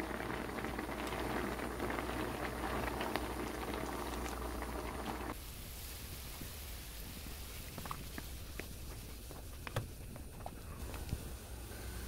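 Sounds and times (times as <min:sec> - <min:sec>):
stew bubbling and popping: 0:00.0 - 0:05.4.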